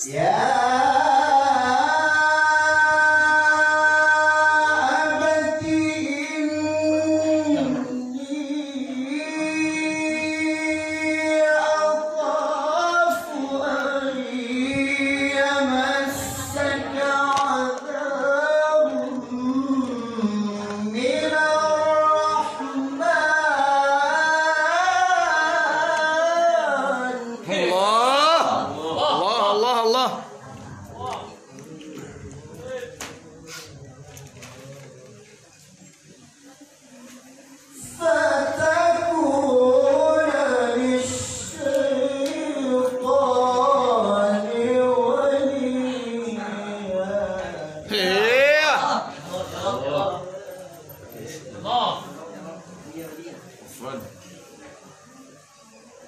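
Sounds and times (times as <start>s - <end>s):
man reciting melodically into microphone: 0.0s - 33.3s, 37.7s - 52.2s.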